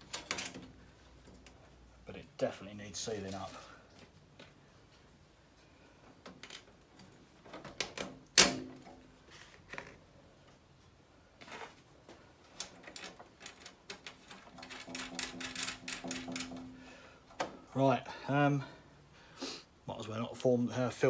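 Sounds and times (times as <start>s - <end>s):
metal clicks and knocks: 12.5s - 16.8s.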